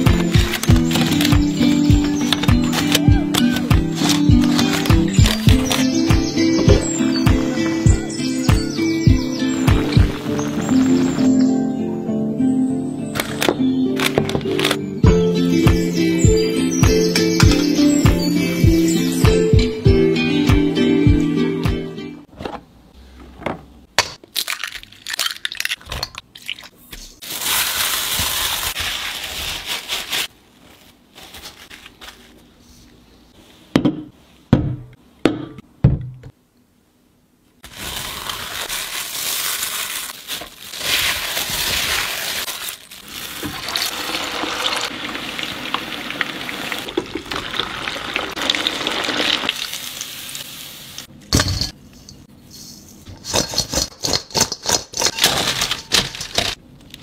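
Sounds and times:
chicken deep-frying in oil: 0:40.9 - 0:51.1.

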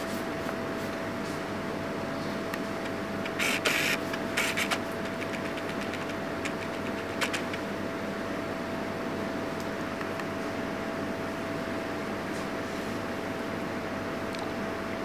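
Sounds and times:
room hum: 0:00.0 - 0:15.0
paintbrush scrubbing on paper: 0:03.2 - 0:07.6.

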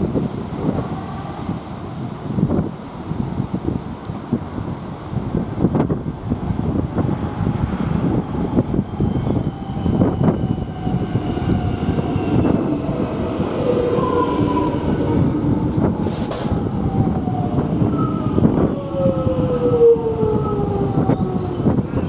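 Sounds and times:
train wheels rumbling: 0:05.8 - 0:22.0
brief air hiss: 0:16.0 - 0:16.6.

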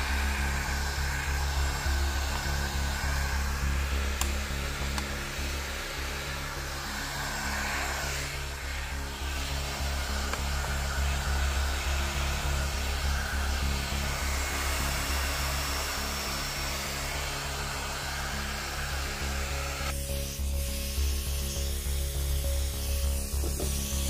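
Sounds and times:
heat gun blowing air: 0:00.0 - 0:24.0.

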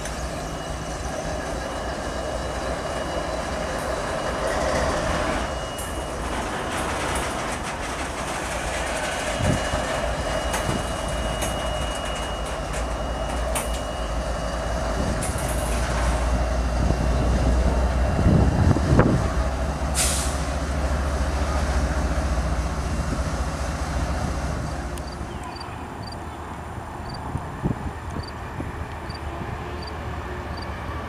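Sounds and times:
diesel locomotive engines rumbling: 0:00.0 - 0:31.0.

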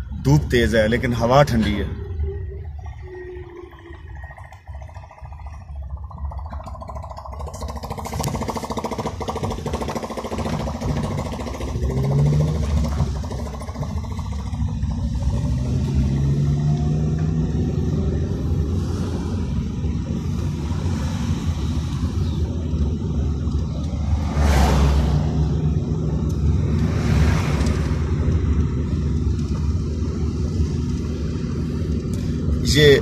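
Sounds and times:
car engine from inside cabin: 0:00.0 - 0:33.0.

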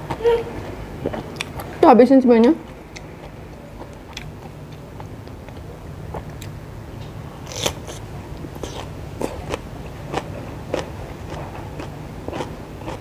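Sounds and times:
crunching cucumber: 0:07.4 - 0:08.0, 0:08.6 - 0:13.0.

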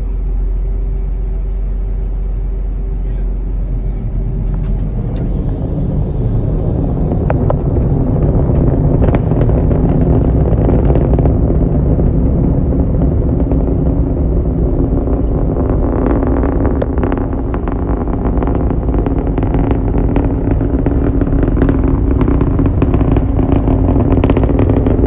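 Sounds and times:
distant rocket engine rumble: 0:00.0 - 0:25.0
rocket engine crackle: 0:00.0 - 0:25.0.

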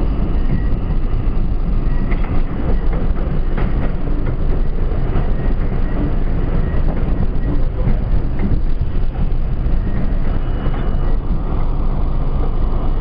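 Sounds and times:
wheels rumbling on rails: 0:00.0 - 0:13.0
faint high whine: 0:08.8 - 0:13.0.

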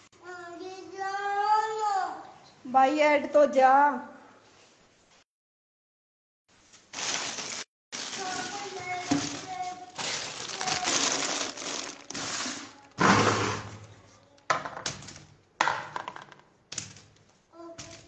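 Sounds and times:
rustling and clattering: 0:06.8 - 0:13.8, 0:14.5 - 0:18.0.

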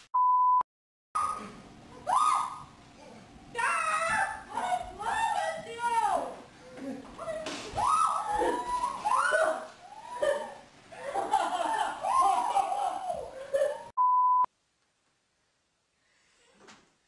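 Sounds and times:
censor beep: 0:00.1 - 0:00.6, 0:14.0 - 0:14.5
people yelling and laughing: 0:06.8 - 0:13.9.

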